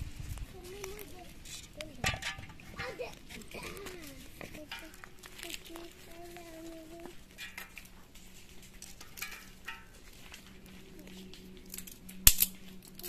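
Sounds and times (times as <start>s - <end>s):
dry twigs rustling and knocking: 0.0s - 13.0s
twig cracking: 11.3s - 13.0s.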